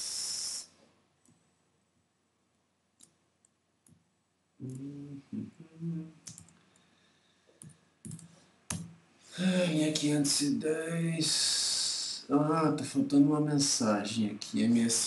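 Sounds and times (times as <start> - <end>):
computer keys clicking: 3.0 - 4.0, 6.2 - 6.6, 7.6 - 9.0
man humming: 4.6 - 6.3.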